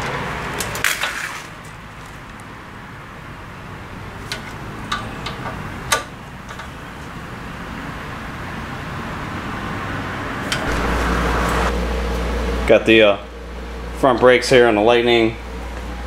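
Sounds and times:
loud low hum: 10.4 - 16.0
background hum: 10.5 - 16.0.

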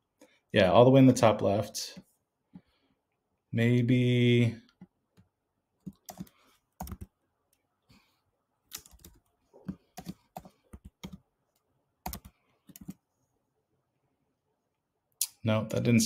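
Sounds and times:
typing on computer keyboard: 5.8 - 7.1, 8.7 - 11.2, 12.0 - 13.0.

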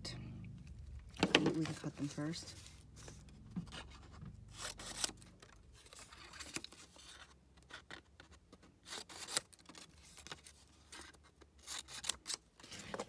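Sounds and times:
paper rustling: 1.2 - 13.0
scissors snipping paper: 11.6 - 12.4.

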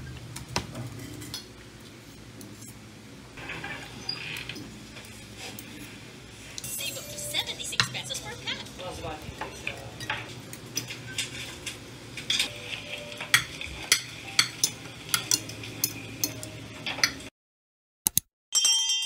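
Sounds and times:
cutlery scraping on plate: 9.4 - 17.2.

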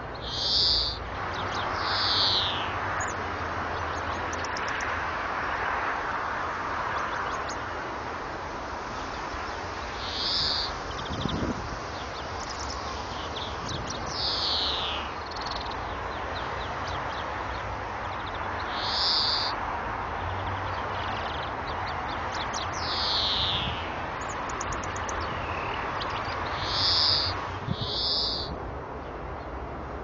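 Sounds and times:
bird twittering trills: 0.0 - 4.9, 9.0 - 19.6, 20.2 - 28.6.

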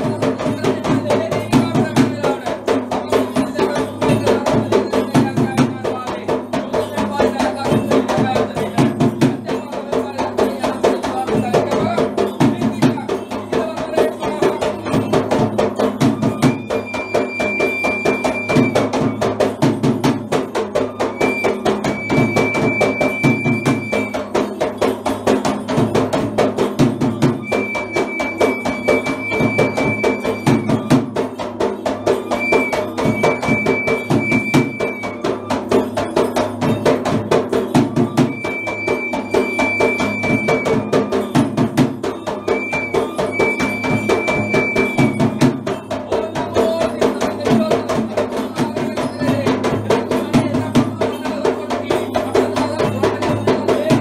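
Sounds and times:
hand-beaten barrel drum: 0.0 - 54.0
wooden pipe high held notes: 16.4 - 19.1, 27.4 - 30.8, 38.3 - 41.1.

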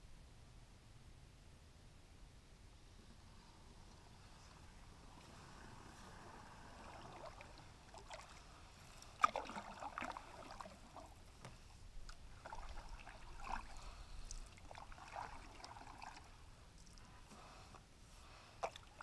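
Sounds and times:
water swishing off a paddle: 4.5 - 19.0.

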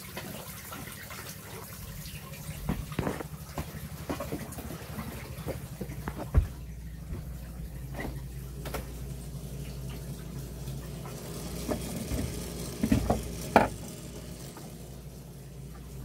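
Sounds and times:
steady low hum: 0.9 - 16.0
handling knocks and clatter: 2.6 - 4.8, 5.4 - 9.0.

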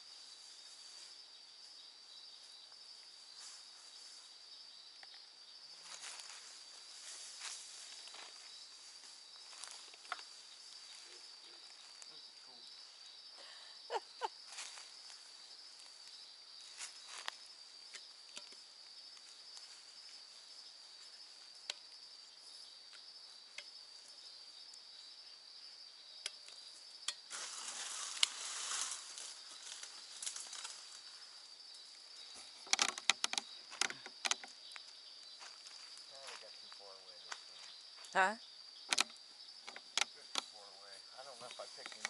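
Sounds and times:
night insect chorus: 0.0 - 42.0
rustle: 0.0 - 42.0
sharp clicks and knocks: 32.6 - 34.5, 38.9 - 40.5
small clicks: 32.6 - 34.5.

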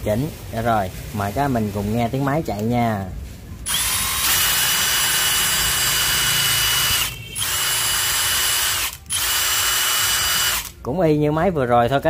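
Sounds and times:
impact wrench motor whine: 3.7 - 10.7.

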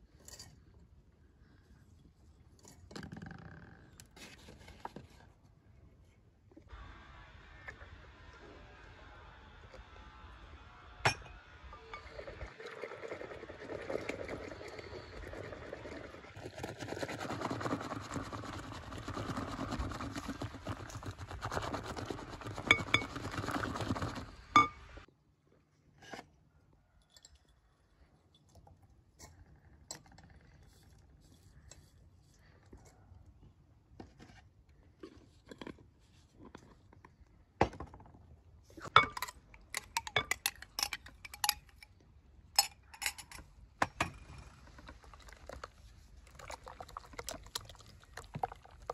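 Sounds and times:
whisk beating batter: 12.8 - 24.8
whisk clinking against glass: 22.4 - 23.7, 24.6 - 24.8.

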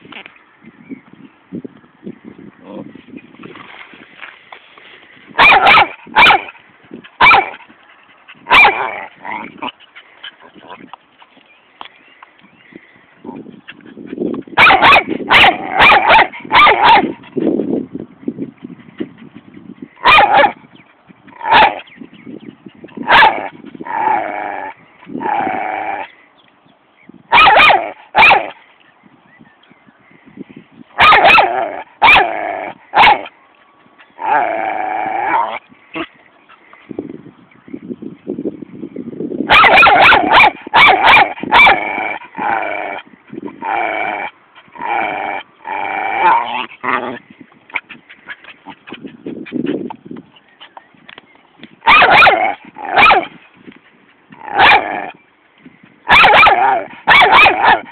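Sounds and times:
dog barking: 5.4 - 6.6, 7.2 - 7.6, 8.5 - 8.9, 14.6 - 17.2, 20.0 - 20.6, 21.5 - 21.8, 23.1 - 23.5, 27.3 - 28.5, 31.0 - 32.3, 33.0 - 33.3, 39.5 - 41.9, 51.8 - 53.3, 54.6 - 55.0, 56.1 - 57.9
dog grumbling: 8.8 - 9.7, 43.6 - 47.3.

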